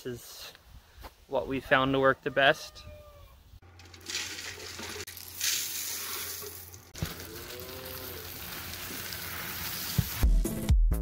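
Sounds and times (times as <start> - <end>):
feed pellets pouring into metal pail: 3.9 - 10.2.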